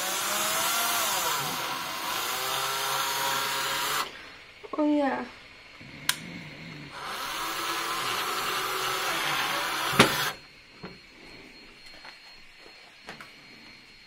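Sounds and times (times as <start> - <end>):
drill motor whirring: 0.0 - 4.6, 5.6 - 11.1.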